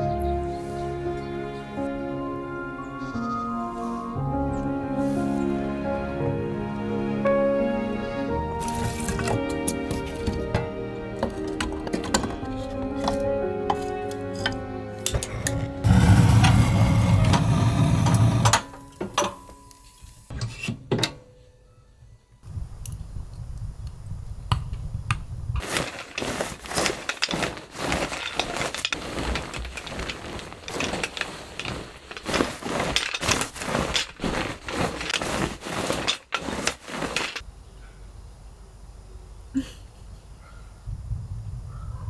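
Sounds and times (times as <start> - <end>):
lint roller rasping over duvet: 15.8 - 18.5, 25.6 - 37.4.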